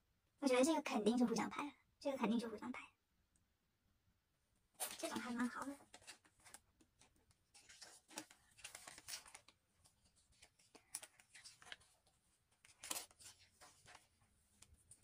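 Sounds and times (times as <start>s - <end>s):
book pages turning: 4.8s - 15.0s.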